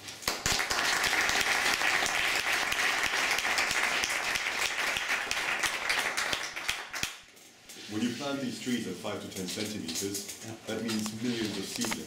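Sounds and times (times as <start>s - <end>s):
audience applauding: 0.2s - 7.2s.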